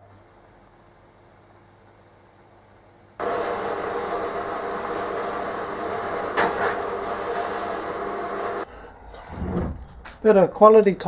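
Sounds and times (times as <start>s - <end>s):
distant band saw cutting: 3.2s - 8.7s.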